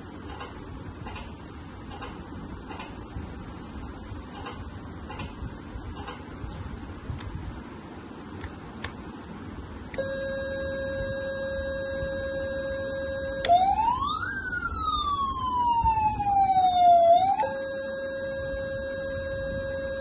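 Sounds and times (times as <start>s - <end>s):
steady electronic tone: 10.0s - 20.0s
toy siren wail: 10.0s - 20.0s.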